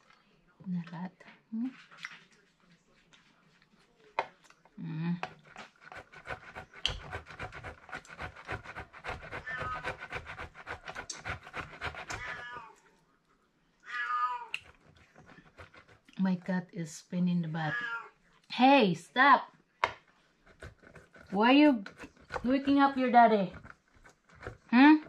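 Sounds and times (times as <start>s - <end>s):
cheese grating on metal grater: 5.3s - 12.6s, 14.6s - 16.5s, 20.4s - 25.0s
cat meowing: 9.4s - 9.8s, 12.0s - 12.8s, 13.8s - 14.6s, 17.6s - 18.1s.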